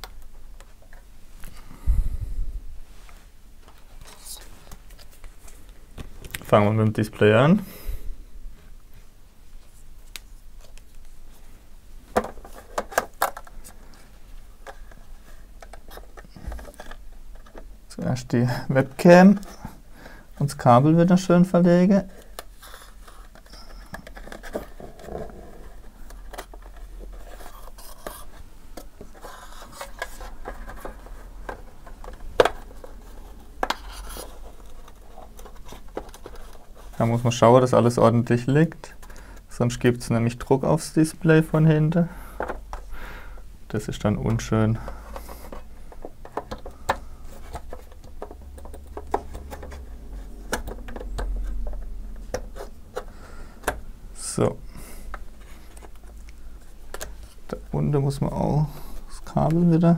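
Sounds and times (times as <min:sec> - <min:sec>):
scrapes and rubbing on plastic: 0:22.4 - 0:37.4, 0:44.8 - 0:53.3.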